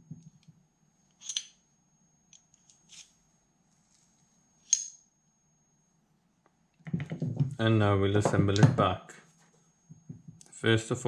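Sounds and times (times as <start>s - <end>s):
metal gun parts clicking and scraping: 1.1s - 1.6s.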